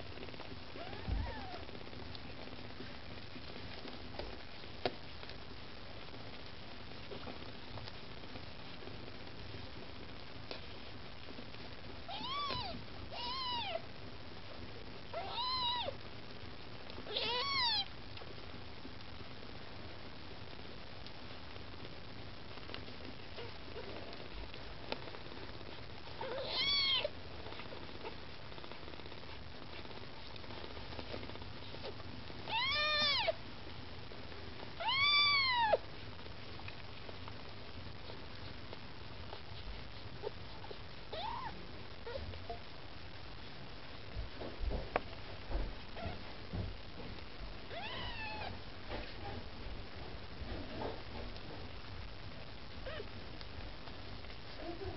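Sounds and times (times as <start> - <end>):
kitten mewing: 12.1 - 13.8, 17.1 - 17.9, 26.2 - 27.1, 32.5 - 33.4, 34.8 - 35.8, 47.7 - 48.5.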